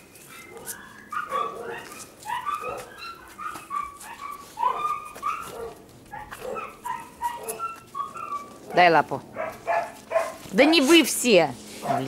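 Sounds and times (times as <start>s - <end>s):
puppies whining and yipping: 0.0s - 8.8s.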